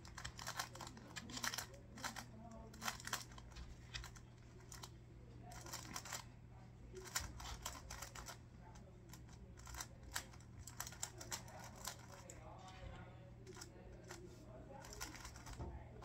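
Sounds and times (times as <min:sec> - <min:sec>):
puzzle cube plastic clicks: 0:00.0 - 0:04.9.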